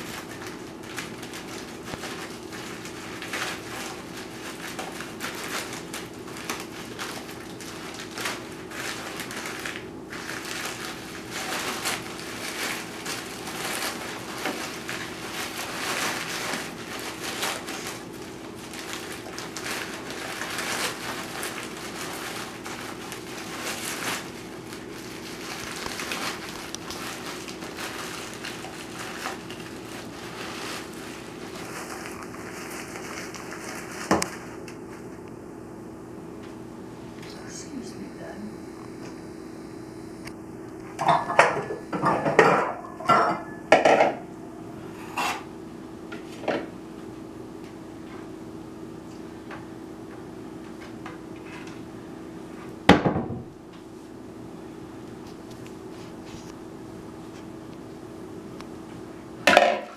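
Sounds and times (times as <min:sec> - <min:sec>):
plastic bag crinkling: 0:00.0 - 0:35.2
faint steady hum: 0:00.0 - 0:59.9.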